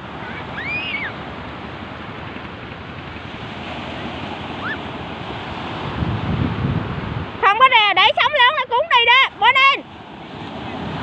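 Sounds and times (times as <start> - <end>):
small waves breaking on beach: 0.0 - 11.0
wind on microphone: 0.0 - 11.0.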